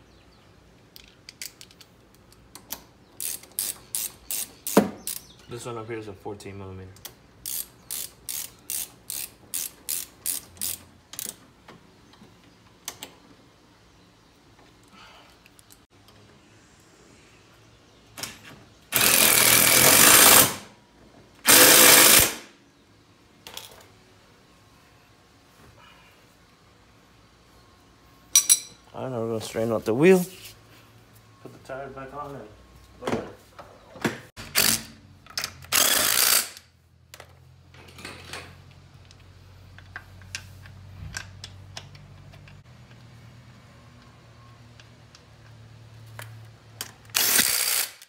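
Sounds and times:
impact wrench bursts: 3.2s - 5.3s, 7.4s - 11.3s, 18.9s - 20.7s, 21.4s - 22.5s, 34.4s - 35.0s, 35.6s - 36.7s, 47.1s - 48.0s.

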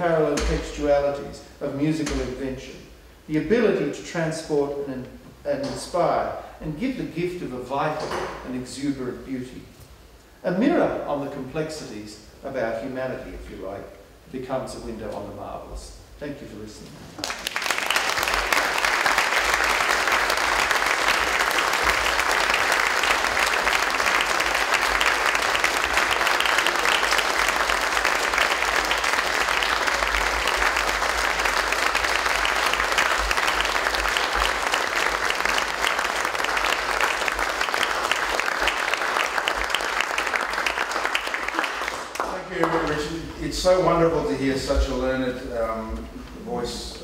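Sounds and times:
audience applauding: 17.2s - 43.2s.

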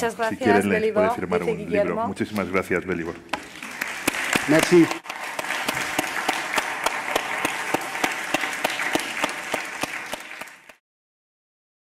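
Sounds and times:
audience applauding: 3.3s - 10.8s.

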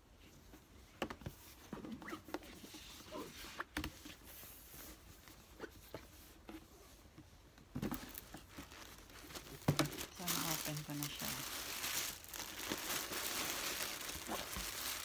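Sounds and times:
ribbon rustling on cardboard box: 7.7s - 15.0s.

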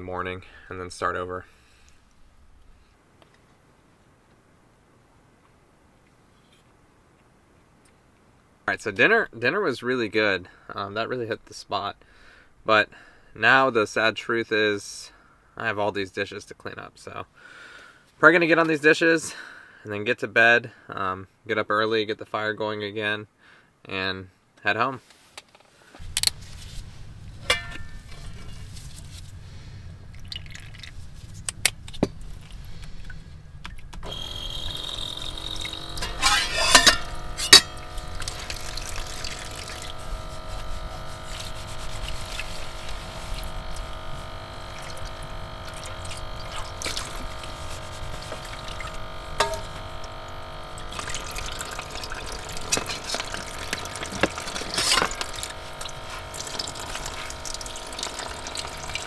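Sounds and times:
faucet pump humming: 27.0s - 59.0s
water running into plastic basin: 30.1s - 59.0s.

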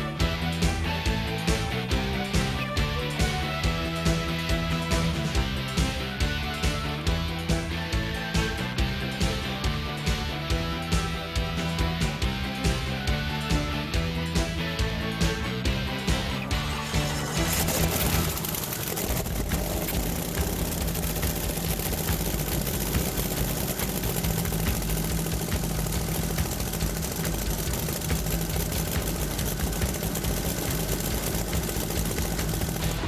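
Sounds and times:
boat engine idling: 15.1s - 33.0s.

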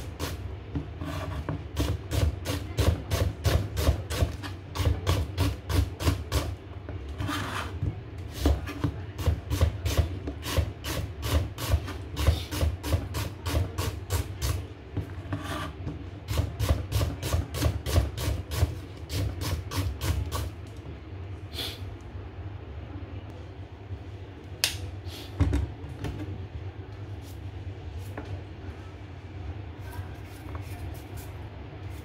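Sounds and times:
slices scraped on board: 1.0s - 2.9s, 7.1s - 8.9s, 15.1s - 15.9s
knife chopping on cutting board: 16.3s - 20.4s.

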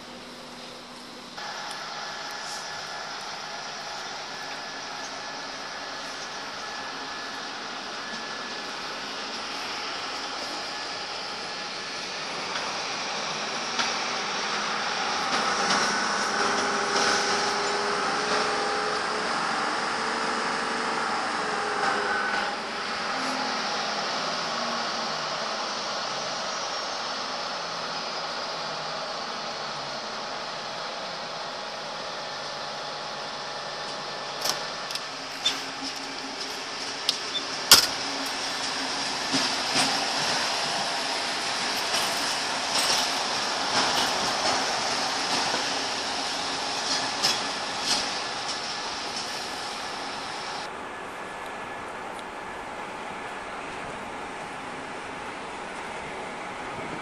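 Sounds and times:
electric locomotive whine: 0.0s - 57.0s
train wheels clicking over rail joints: 1.0s - 20.2s, 33.8s - 50.7s.

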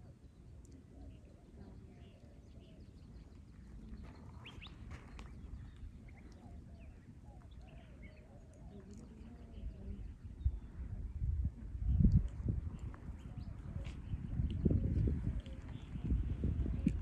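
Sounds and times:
bird chirps: 0.0s - 10.7s.

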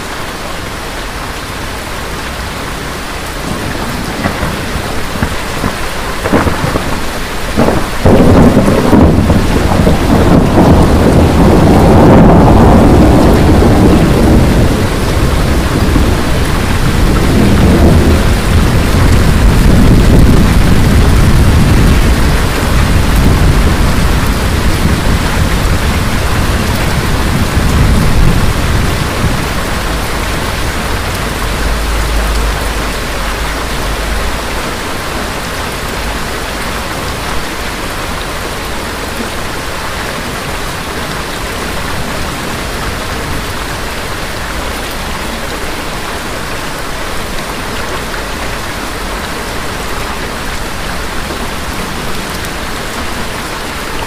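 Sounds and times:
steady rain falling: 0.0s - 54.0s
thunder rumbling: 2.8s - 46.0s.

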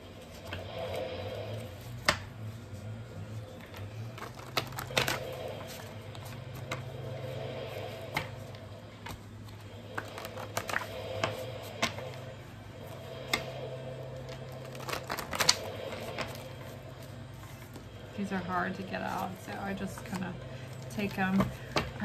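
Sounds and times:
low hum: 0.0s - 22.0s
cards snapping and tapping: 2.0s - 2.4s, 3.6s - 6.9s, 8.1s - 9.2s, 9.9s - 12.2s, 14.6s - 16.4s.

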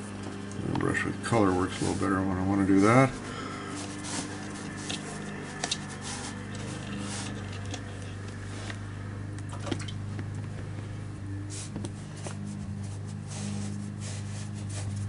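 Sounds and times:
brush on paper: 1.7s - 7.5s, 11.5s - 15.0s.

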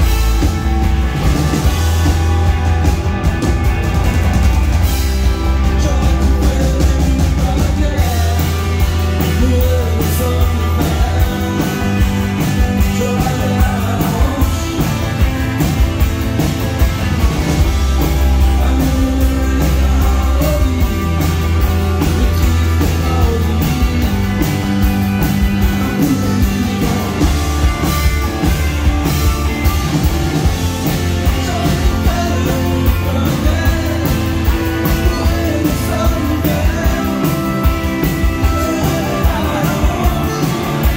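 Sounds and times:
bass line: 0.0s - 40.9s
drums: 0.0s - 40.9s
guitars: 0.0s - 40.9s
man singing: 5.2s - 15.3s, 17.9s - 27.9s, 30.8s - 40.9s.

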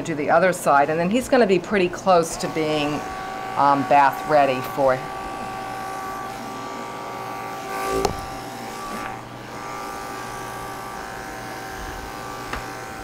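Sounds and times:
electric pet clipper humming: 0.0s - 13.0s.

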